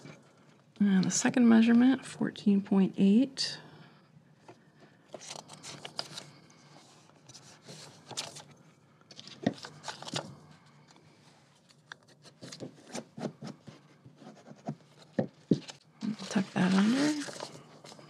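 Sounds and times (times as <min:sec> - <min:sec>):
paper page rustling and crinkling: 0:05.1 - 0:18.0.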